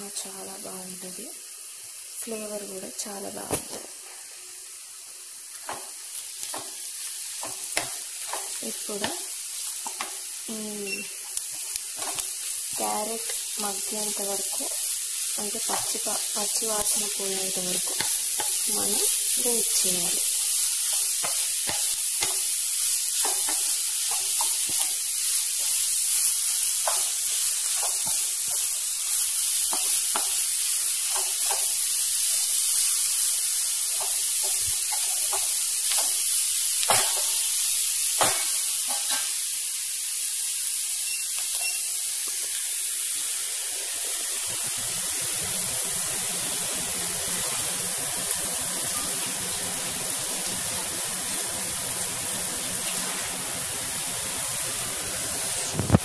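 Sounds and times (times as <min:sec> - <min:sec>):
vegetables sizzling in a pan: 0:00.0 - 0:56.0
spatula scraping and tapping pan: 0:07.4 - 0:09.2, 0:09.8 - 0:10.2, 0:20.8 - 0:22.4, 0:23.2 - 0:25.0, 0:26.8 - 0:28.7, 0:29.6 - 0:30.4, 0:31.0 - 0:31.7.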